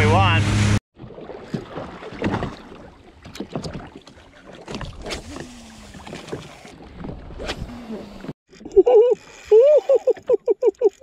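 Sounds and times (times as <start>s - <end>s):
small waves lapping against a hull: 0.9s - 8.4s.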